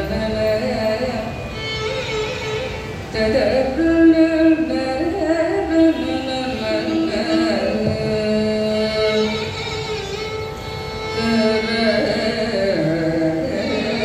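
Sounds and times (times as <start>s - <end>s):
woman singing: 0.0s - 1.3s, 3.1s - 9.5s, 11.2s - 14.0s
violin accompaniment: 0.0s - 14.0s.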